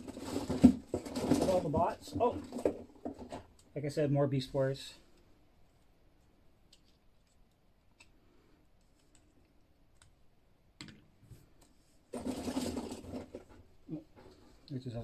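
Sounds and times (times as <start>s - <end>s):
toys rustling and clattering: 0.0s - 3.7s, 11.4s - 14.7s.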